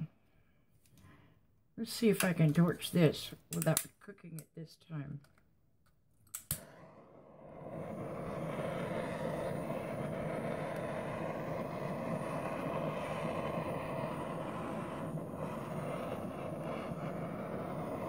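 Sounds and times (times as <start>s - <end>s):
torch flame burning: 6.4s - 18.0s.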